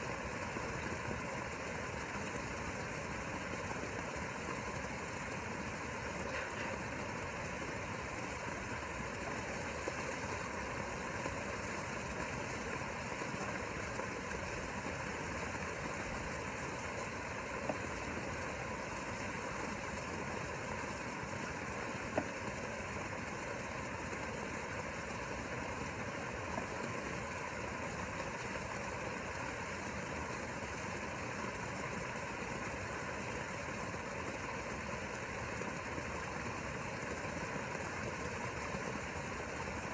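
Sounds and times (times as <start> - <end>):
pump humming with hiss: 0.0 - 39.9.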